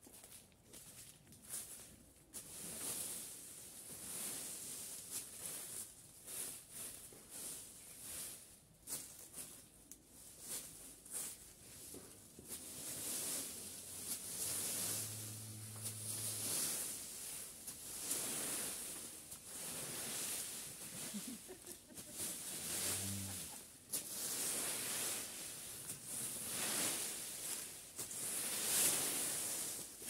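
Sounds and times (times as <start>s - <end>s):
rake scraping through dry leaves: 0.1s - 30.0s
low hum: 14.0s - 17.0s.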